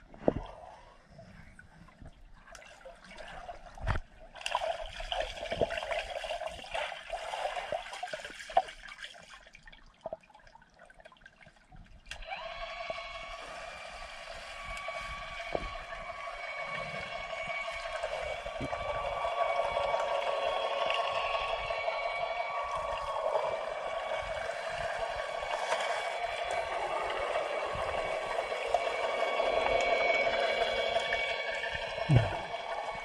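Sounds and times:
muffled underwater swishing and bubbling: 0.0 - 8.8, 12.8 - 33.0
steady mechanical hum: 12.1 - 33.0.

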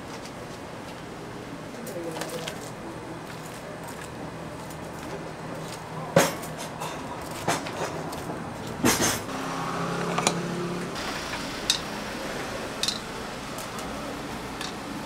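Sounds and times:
metal utensils clinking on trays: 1.8 - 8.2, 11.6 - 11.9, 12.8 - 13.9, 14.6 - 14.8.

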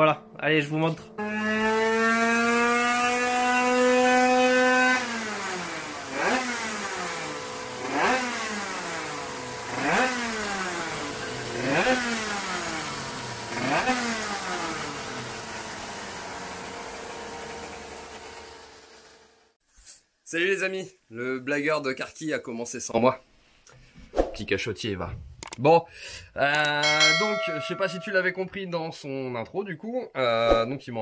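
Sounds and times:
two-stroke engine revving: 1.1 - 19.4.

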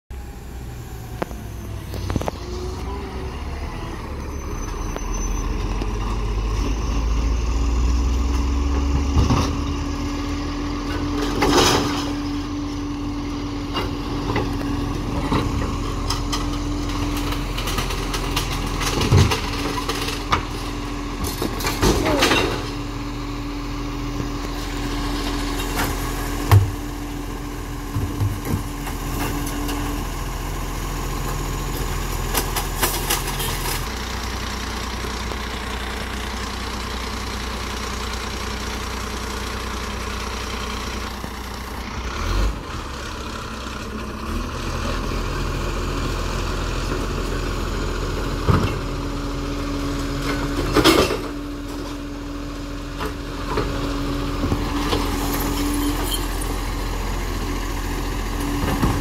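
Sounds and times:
garbage truck diesel engine: 0.1 - 59.0
automated arm whine: 0.4 - 8.9
wheelie bins clanking: 10.8 - 12.5, 13.6 - 23.1, 25.4 - 30.1, 58.4 - 59.0.

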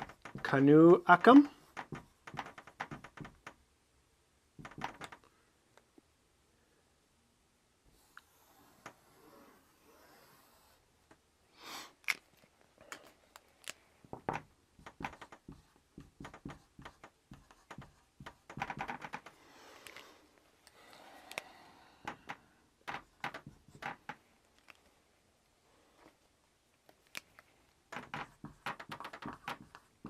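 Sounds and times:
marker scratching on a whiteboard: 0.0 - 3.4, 14.2 - 19.3, 22.8 - 24.1, 28.0 - 30.0
marker tapping on a whiteboard: 0.0 - 3.5, 4.6 - 5.2, 14.0 - 19.3, 22.0 - 24.2, 27.9 - 30.0.

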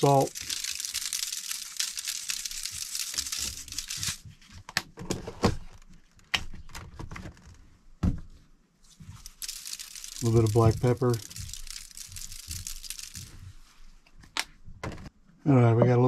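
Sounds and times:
salt sprinkling on rice: 0.0 - 4.2, 9.1 - 13.5
containers clicking and knocking: 9.2 - 13.3.

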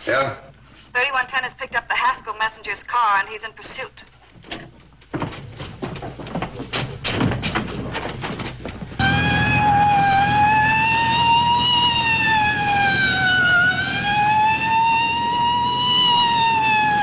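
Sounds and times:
car engine and road noise: 7.6 - 17.0
police siren wailing: 9.0 - 17.0.

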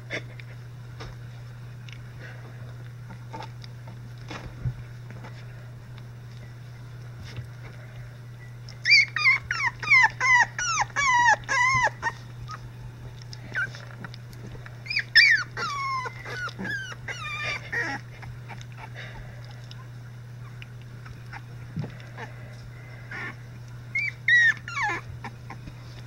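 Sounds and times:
puppies whining and yelping: 8.7 - 26.0.

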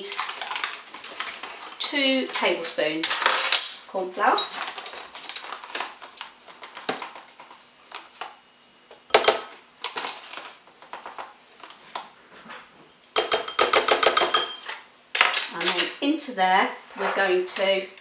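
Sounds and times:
spoon rustling in a packet: 0.0 - 1.8, 4.4 - 8.2
metal spoons clinking on glass bowl: 13.2 - 14.7.

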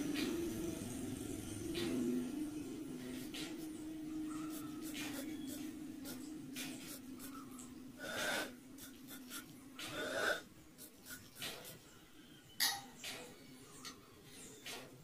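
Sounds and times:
faint steady hum: 0.0 - 15.0
spray bottle hissing sprays: 3.2 - 7.4, 8.0 - 11.8.

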